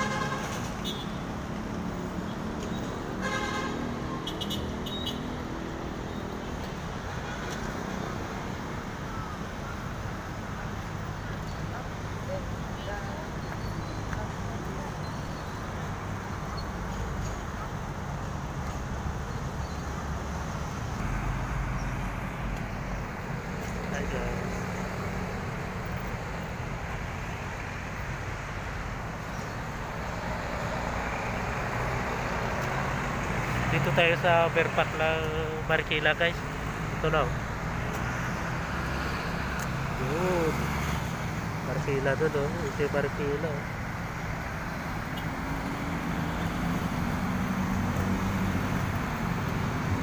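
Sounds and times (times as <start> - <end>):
road traffic rushing: 0.0 - 50.0
engine hum: 18.1 - 50.0.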